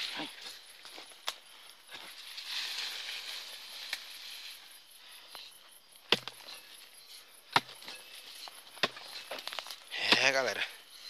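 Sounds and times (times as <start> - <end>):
rustling through dry brush: 0.0 - 5.6
night insects pulsing: 0.0 - 11.0.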